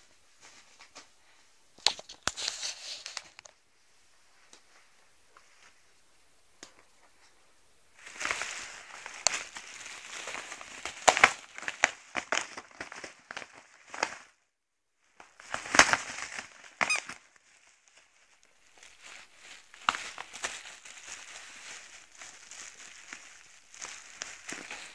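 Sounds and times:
paper envelope crinkling and tearing: 1.8 - 3.5, 8.0 - 14.4, 15.2 - 24.9.

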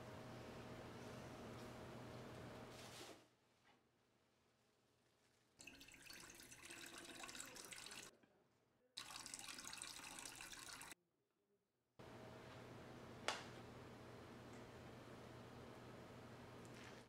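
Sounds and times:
liquid pouring into steel bowl: 5.6 - 8.1, 9.0 - 11.0.

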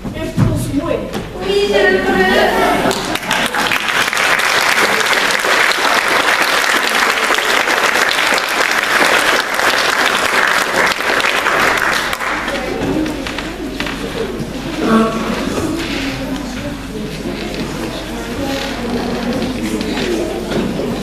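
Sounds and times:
audience applauding: 2.7 - 14.0.

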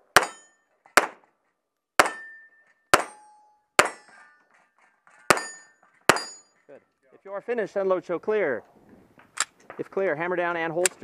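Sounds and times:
metallic ring of steel targets: 0.0 - 0.9, 2.0 - 6.7
pistol shots: 3.8 - 4.1.

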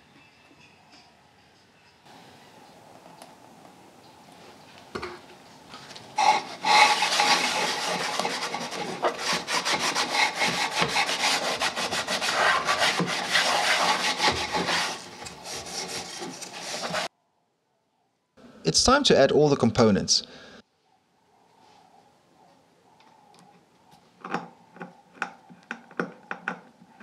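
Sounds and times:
cloth scrubbing on wood: 6.2 - 17.1.

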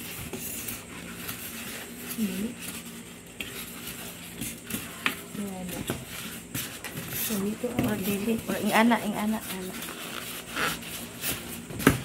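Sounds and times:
foam rustling against cardboard: 0.0 - 12.0.

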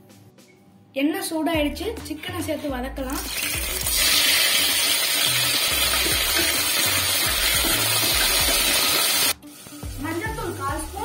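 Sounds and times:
background music with low beat: 0.0 - 11.0
chicken sizzling in hot oil: 3.2 - 11.0.

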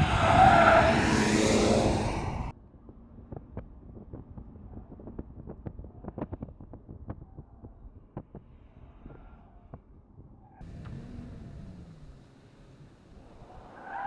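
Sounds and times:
engine and road noise: 0.0 - 5.6, 10.4 - 14.0
truck low rumble: 10.6 - 14.0.

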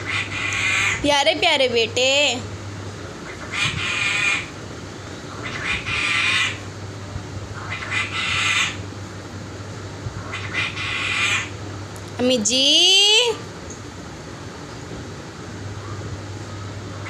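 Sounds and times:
parrot squawking: 0.0 - 1.0, 3.3 - 4.5, 5.3 - 6.6, 7.6 - 8.8, 10.2 - 11.6.

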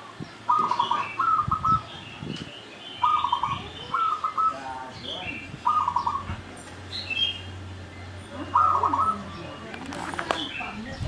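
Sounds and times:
doves cooing: 0.0 - 2.0, 3.0 - 6.9, 8.2 - 11.0
small birds chirping: 0.0 - 11.0.

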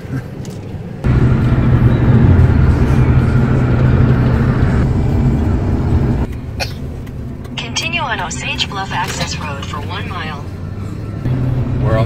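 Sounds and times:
engine and tyre rumble: 0.0 - 12.0
wind rushing: 1.0 - 6.3.

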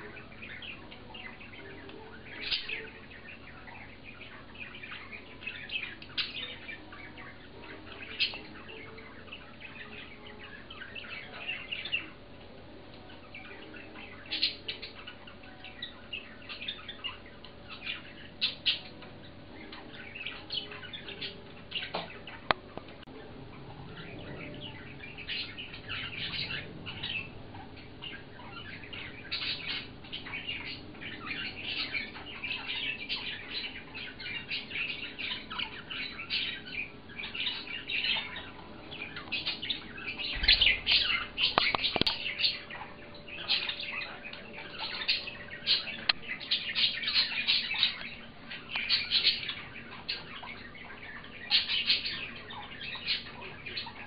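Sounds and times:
budgerigars chirping: 0.0 - 12.2, 13.0 - 54.0.

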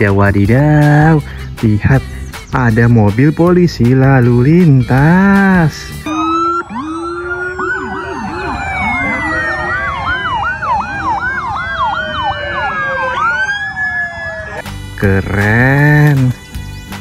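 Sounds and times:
police sirens wailing: 4.5 - 16.4
police sirens yelping: 4.9 - 14.6.

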